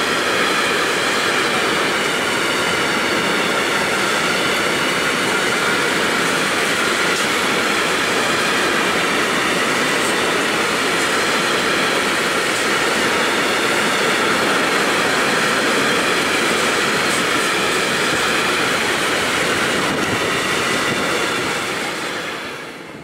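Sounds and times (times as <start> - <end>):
steel train wheels on rails: 0.0 - 23.0.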